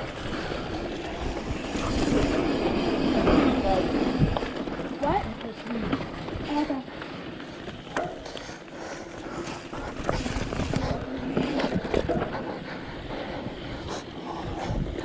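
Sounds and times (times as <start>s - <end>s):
wind rushing over microphone: 0.0s - 6.6s, 9.8s - 15.0s
bike knocks and rattles: 9.9s - 12.4s.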